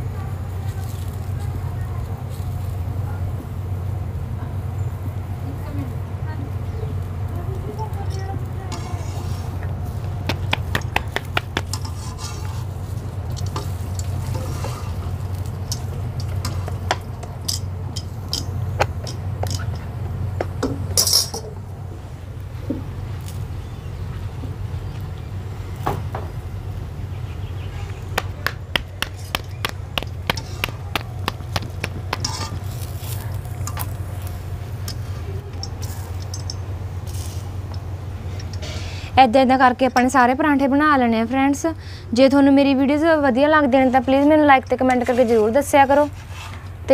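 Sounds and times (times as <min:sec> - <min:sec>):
steady low hum: 0:00.0 - 0:46.9
metal turner scraping griddle: 0:08.0 - 0:10.1, 0:11.6 - 0:19.9, 0:31.9 - 0:39.1
light taps of hands patting dough: 0:10.1 - 0:11.7, 0:28.2 - 0:32.4
steel cookware clinking: 0:13.3 - 0:19.9, 0:20.6 - 0:21.6, 0:32.2 - 0:33.9, 0:34.8 - 0:38.7
cookware clatter: 0:20.7 - 0:21.6.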